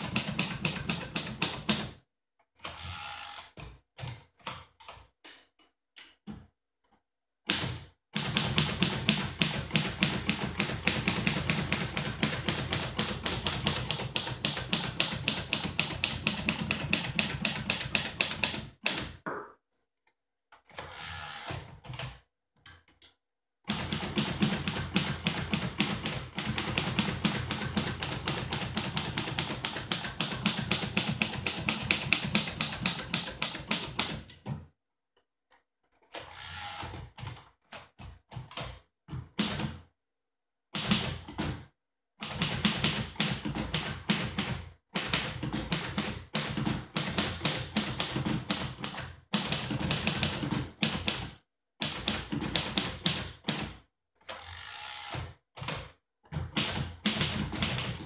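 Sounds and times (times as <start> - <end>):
manual typewriter typing: 0.0 - 1.9, 7.5 - 19.2, 23.7 - 34.3, 42.2 - 58.0.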